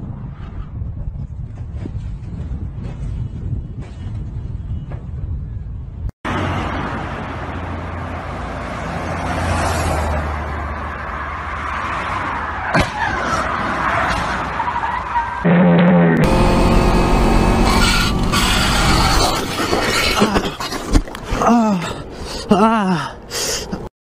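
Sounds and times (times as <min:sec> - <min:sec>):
wind on microphone: 0:00.0 - 0:06.1
car road and wind noise: 0:00.0 - 0:20.0
low engine hum: 0:15.5 - 0:19.6
tyres squealing: 0:16.3 - 0:21.0.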